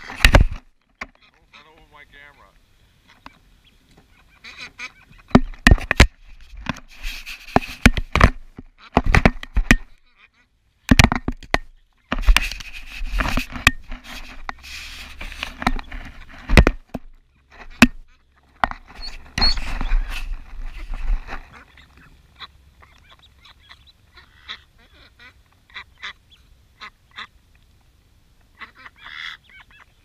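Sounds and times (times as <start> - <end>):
ducks pecking camera housing: 0.0 - 1.3, 5.1 - 10.0, 10.9 - 22.1.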